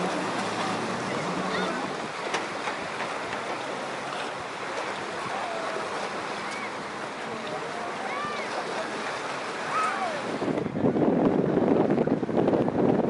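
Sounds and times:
distant voices: 0.0s - 10.6s
ocean surf: 0.0s - 13.0s.

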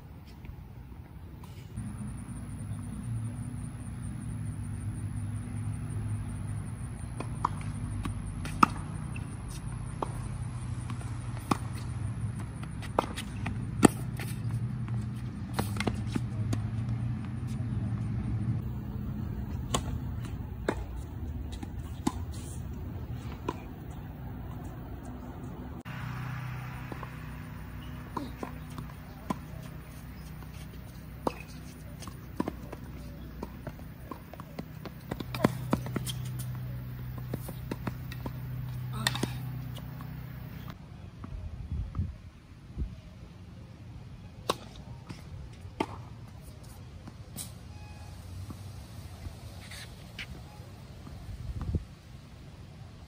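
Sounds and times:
steady low hum: 0.0s - 40.8s
balls bouncing on hard court: 1.8s - 25.9s, 26.7s - 40.8s
tennis balls struck by racquets: 1.8s - 40.8s, 44.4s - 46.8s.

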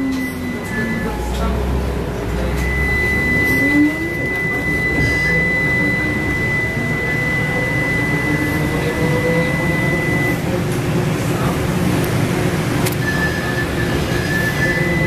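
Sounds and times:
lower whine rising in pitch: 0.0s - 10.4s
electric traction drive whine: 0.0s - 15.0s.

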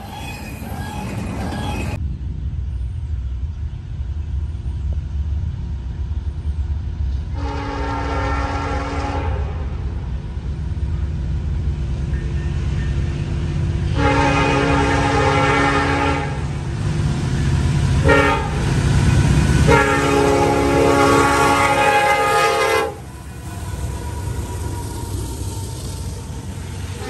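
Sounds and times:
locomotive air horn: 7.3s - 9.9s, 13.9s - 16.5s, 18.0s - 18.6s, 19.6s - 27.0s.

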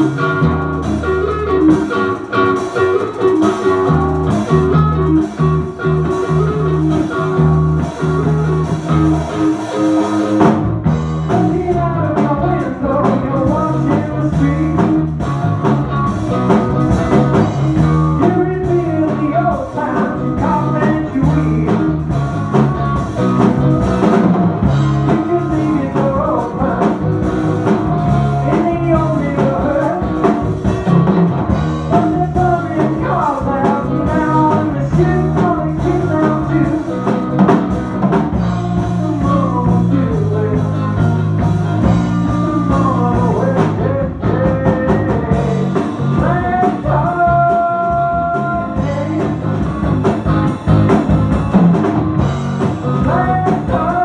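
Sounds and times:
drum kit: 0.0s - 54.0s
electric bass: 0.0s - 54.0s
electric guitar: 0.0s - 54.0s
person singing: 11.2s - 15.7s, 17.3s - 22.2s, 24.8s - 31.1s, 31.8s - 37.5s, 38.6s - 49.8s, 52.6s - 54.0s.

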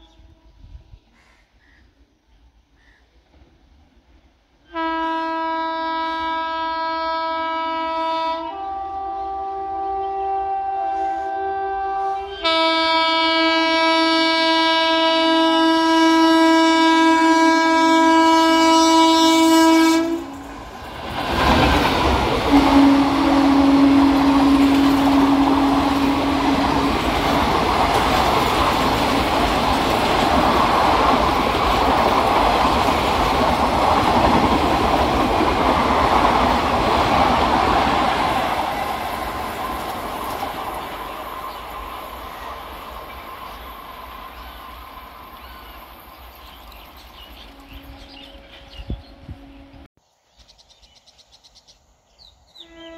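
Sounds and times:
low train horn note: 4.6s - 29.1s, 47.2s - 49.9s, 52.5s - 52.9s
train horn blast: 4.6s - 29.1s, 47.2s - 49.9s, 52.6s - 52.9s
train wheel clatter and rumble: 20.4s - 22.7s, 25.0s - 43.7s.

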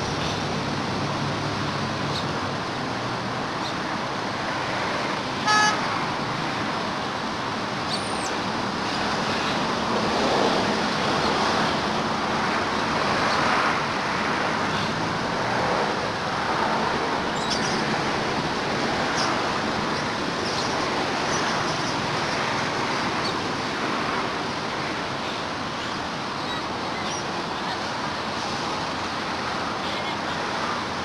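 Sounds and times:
traffic noise: 0.0s - 31.0s
vehicle horn toot: 5.4s - 5.9s.

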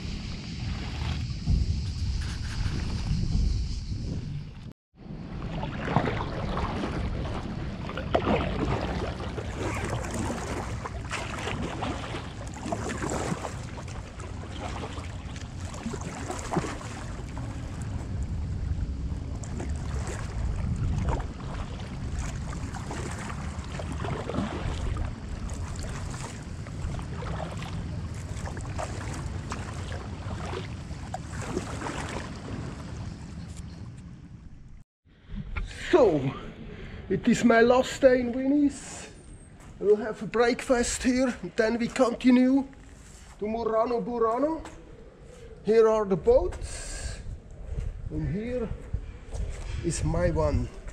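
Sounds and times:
water lapping against kayak: 0.0s - 3.2s, 5.0s - 34.8s
wind rumbling on microphone: 0.0s - 42.0s, 42.7s - 50.9s
paddle strokes splashing: 5.0s - 33.9s.

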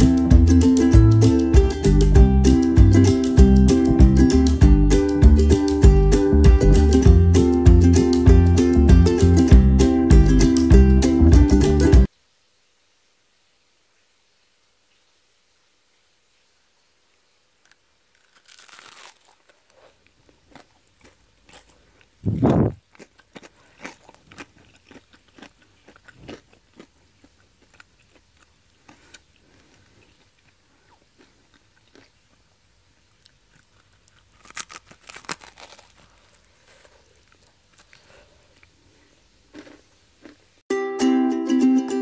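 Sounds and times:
fried chicken crunching: 17.7s - 40.5s.

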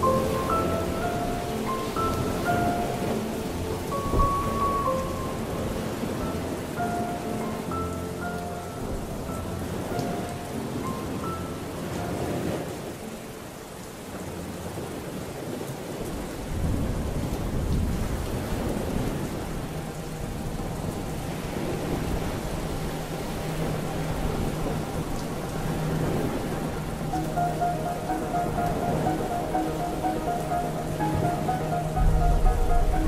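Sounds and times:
sustained music tones: 0.0s - 15.2s, 18.6s - 33.0s
steady rain: 0.0s - 33.0s
rolling thunder: 23.5s - 33.0s.

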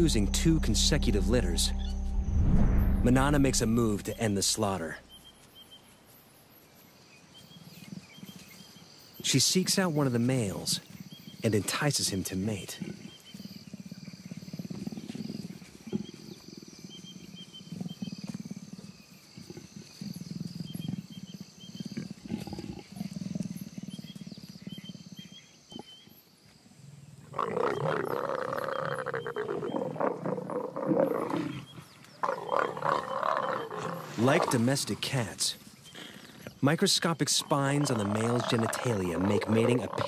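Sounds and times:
leopards growling: 12.6s - 25.9s, 27.3s - 36.6s, 37.3s - 40.0s
leopard snarling: 27.3s - 35.0s, 35.9s - 36.6s, 37.4s - 40.0s.

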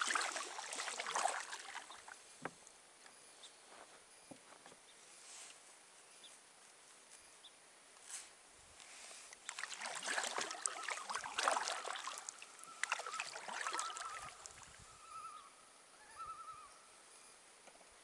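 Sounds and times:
paddle splashing water: 0.0s - 2.6s, 9.4s - 14.9s
bird calling: 10.6s - 17.0s.

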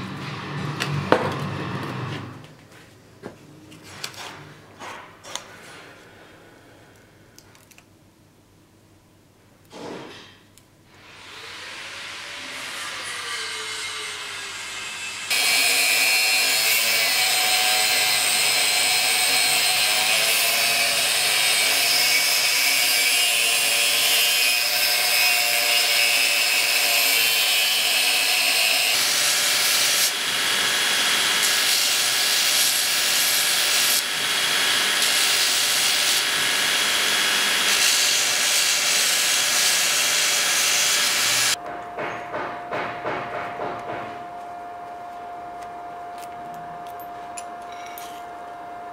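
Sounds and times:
angle grinder cutting steel: 11.0s - 41.6s
belt grinder grinding steel: 11.2s - 41.6s.

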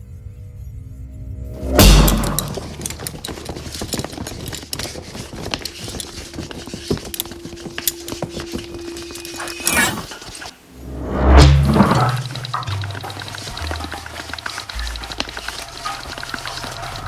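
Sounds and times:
debris clicks and knocks: 11.5s - 17.0s.

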